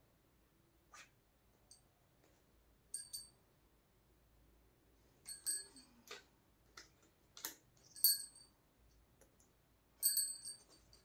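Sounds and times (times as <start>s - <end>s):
small objects clicking and tapping: 5.3s - 8.3s.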